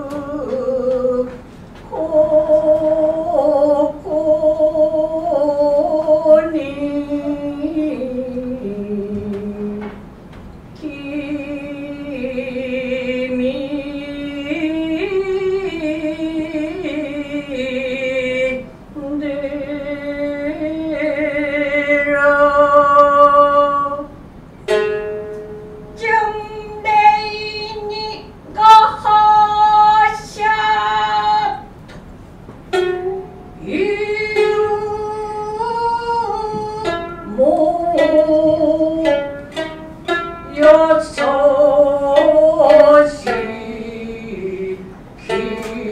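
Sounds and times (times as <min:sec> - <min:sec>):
plucked shamisen notes: 0:19.2 - 0:31.6, 0:32.6 - 0:45.9.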